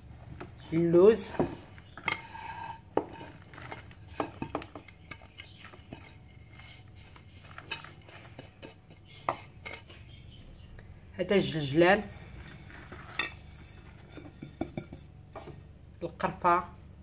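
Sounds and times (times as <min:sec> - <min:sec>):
powder rustling: 0:00.0 - 0:10.1, 0:12.0 - 0:14.8.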